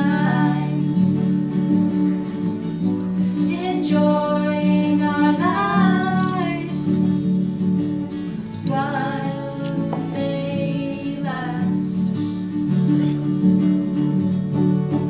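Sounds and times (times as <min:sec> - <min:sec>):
woman singing: 0:00.0 - 0:01.4, 0:03.4 - 0:07.4, 0:08.6 - 0:12.2
strummed acoustic guitars: 0:00.0 - 0:15.0.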